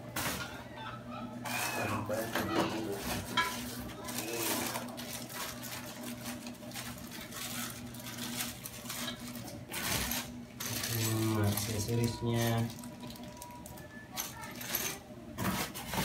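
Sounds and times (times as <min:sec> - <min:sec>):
plastic wrapping crinkling: 0:03.2 - 0:16.0.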